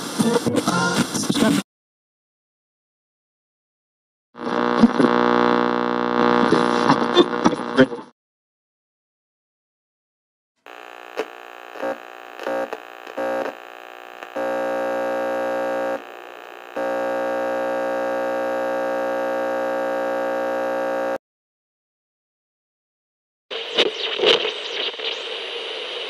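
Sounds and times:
burst of static: 0:04.4 - 0:08.0, 0:10.7 - 0:21.2, 0:23.5 - 0:26.0
radio buzzing hum: 0:04.4 - 0:08.1, 0:10.7 - 0:21.2, 0:23.5 - 0:26.0.

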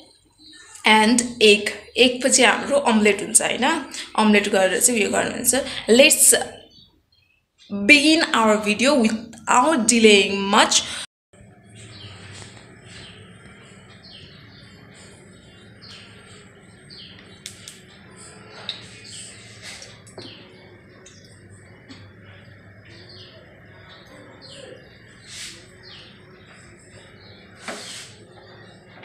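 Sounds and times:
small birds chirping: 0:00.0 - 0:00.8, 0:11.4 - 0:29.0
steady low hum: 0:10.8 - 0:29.0.

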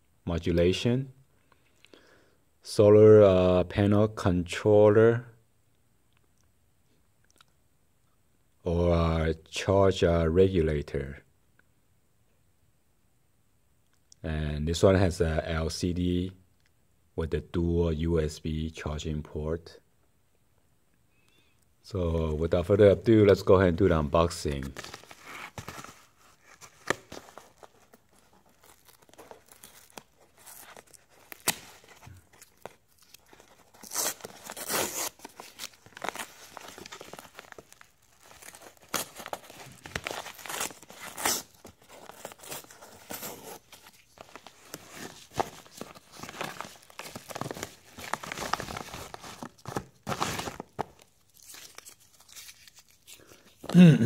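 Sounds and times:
paper mailer tearing: 0:33.0 - 0:50.8.

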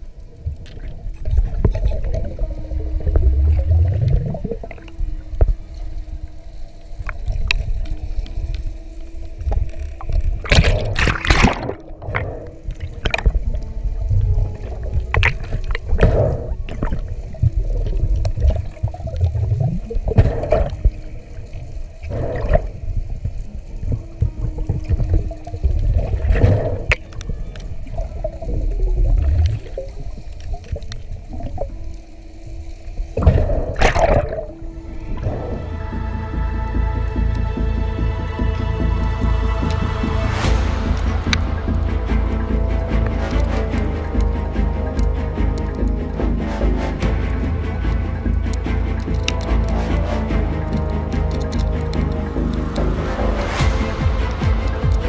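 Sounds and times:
underwater low rumble: 0:00.0 - 0:55.0
water gurgling swishes: 0:00.0 - 0:55.0.

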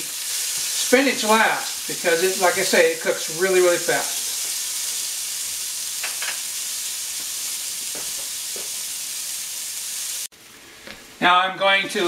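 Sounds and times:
carrots sizzling in oil: 0:00.0 - 0:12.0.

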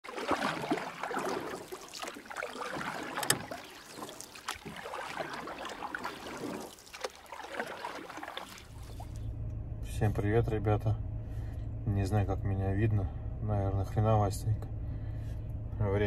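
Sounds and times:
water splashing and gurgling: 0:00.0 - 0:09.3.

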